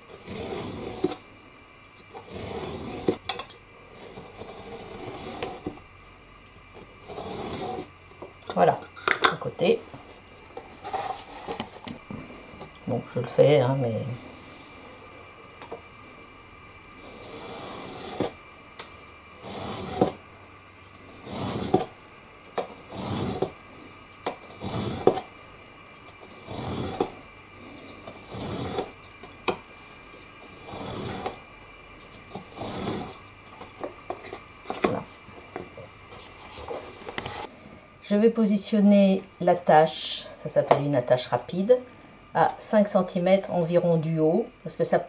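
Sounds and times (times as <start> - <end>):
knife blade scraping through board: 0.1 - 1.2, 2.2 - 3.2, 4.0 - 5.8, 7.0 - 7.9, 17.0 - 18.4, 19.4 - 20.2, 21.1 - 21.9, 22.7 - 23.6, 24.4 - 25.3, 26.2 - 27.2, 28.1 - 29.0, 30.5 - 31.4, 32.3 - 33.2.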